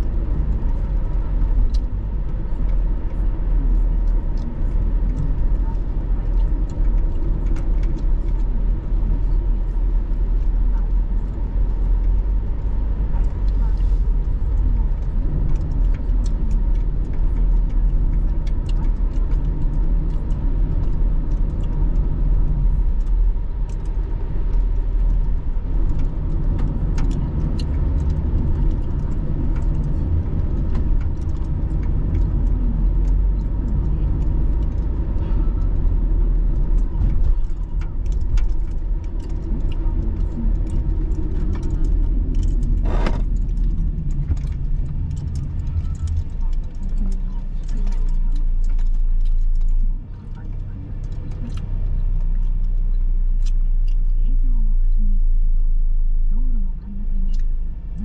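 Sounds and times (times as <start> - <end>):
light clicks and rattles: 0.0 - 54.2
car engine idling: 0.0 - 58.0
low rumble: 0.0 - 58.0.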